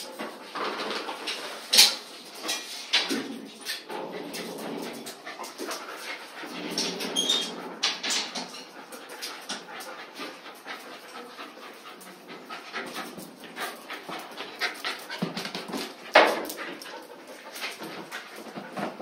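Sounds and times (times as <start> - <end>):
dog panting: 4.8 - 6.8, 8.0 - 19.0.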